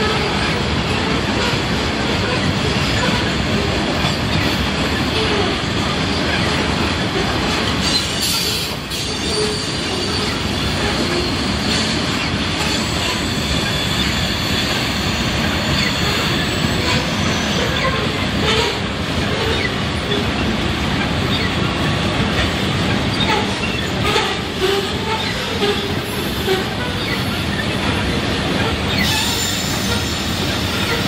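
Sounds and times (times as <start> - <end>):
freight train wheels rumbling: 0.0 - 31.0
high wheel squeal: 7.8 - 18.8, 23.1 - 27.8, 28.8 - 31.0.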